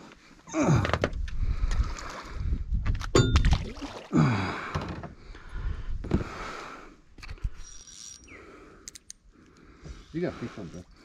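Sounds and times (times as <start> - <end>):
water splashing against boat: 3.2 - 4.9.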